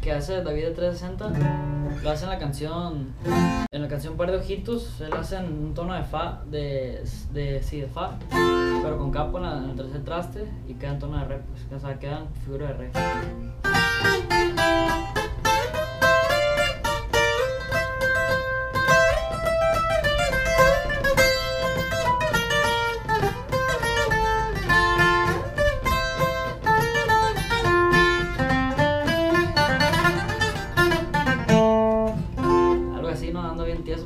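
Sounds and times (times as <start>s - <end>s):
acoustic guitar picking: 0.7s - 3.7s, 8.1s - 11.0s, 12.9s - 34.0s.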